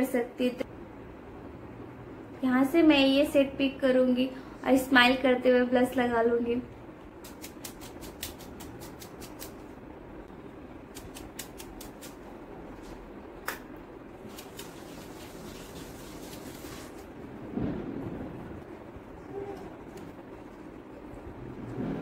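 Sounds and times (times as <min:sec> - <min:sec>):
steady low hiss: 0:00.0 - 0:22.0
brush bristles sweeping skin: 0:07.2 - 0:09.6, 0:10.9 - 0:12.2, 0:14.2 - 0:17.1.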